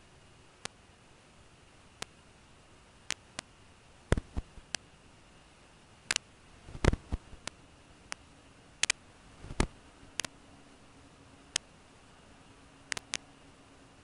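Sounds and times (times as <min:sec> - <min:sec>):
faint steady hiss: 0:00.0 - 0:14.0
sharp clicks and crackles: 0:02.0 - 0:02.2, 0:03.1 - 0:03.5, 0:06.1 - 0:10.4, 0:12.9 - 0:13.3.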